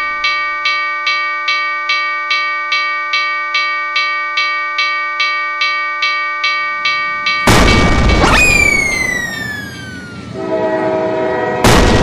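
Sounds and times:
railroad crossing bell ringing: 0:00.0 - 0:11.6.

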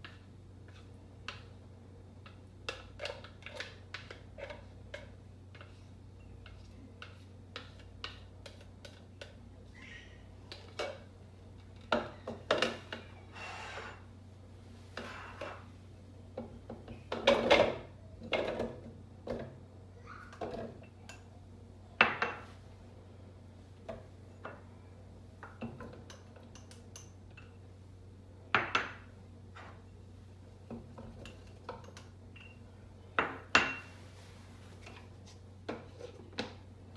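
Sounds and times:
dishes clinking and knocking: 0:22.0 - 0:22.6, 0:33.2 - 0:34.0.

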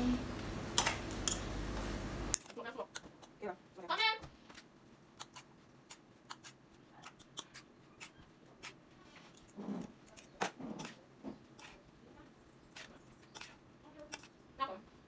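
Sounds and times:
knife clicks cutting vegetables: 0:12.8 - 0:14.3.

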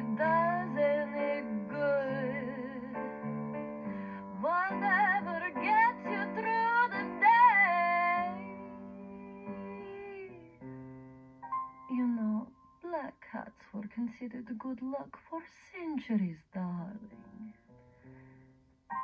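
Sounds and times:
woman singing with vibrato: 0:00.0 - 0:03.0, 0:04.3 - 0:10.4.

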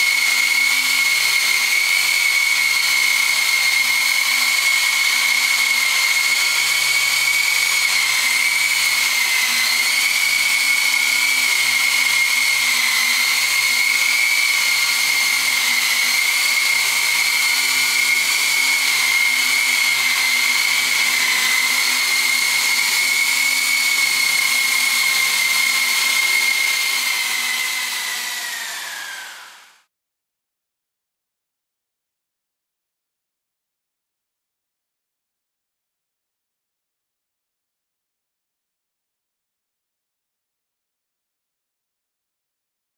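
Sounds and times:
model helicopter rotor whine: 0:00.0 - 0:29.9.

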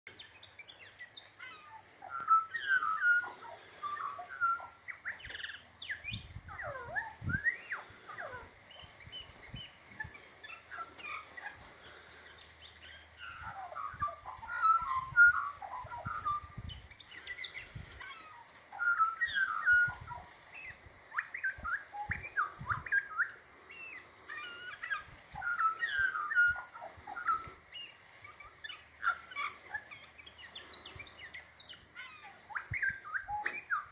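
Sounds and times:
magpie warbling: 0:13.2 - 0:16.6.

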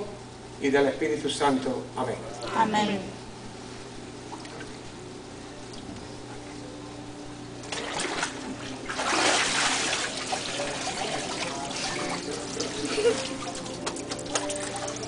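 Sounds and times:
water splashing and sloshing: 0:04.3 - 0:04.9, 0:07.6 - 0:15.0.

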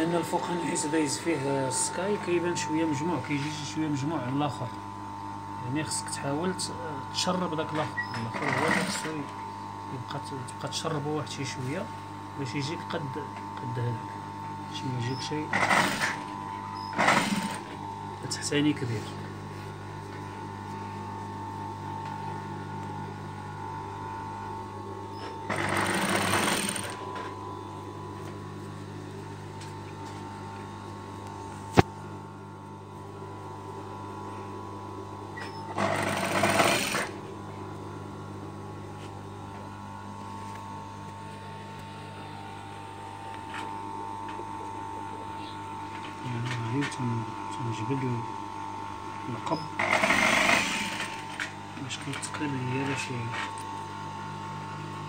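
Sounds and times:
sewing machine motor humming: 0:08.1 - 0:09.3, 0:15.1 - 0:17.8, 0:25.2 - 0:27.3, 0:35.4 - 0:37.2, 0:49.4 - 0:51.5.

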